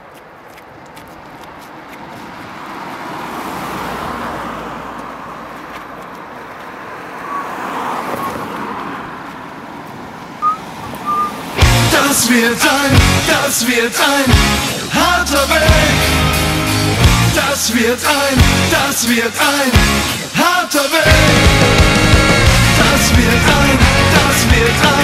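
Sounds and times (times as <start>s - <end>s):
car passing on road: 0.0s - 25.0s
short high chirps: 10.4s - 11.4s.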